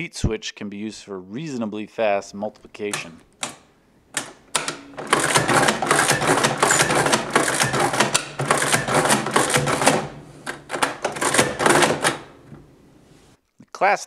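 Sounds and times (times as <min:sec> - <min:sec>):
adding machine clattering: 0:04.2 - 0:12.6.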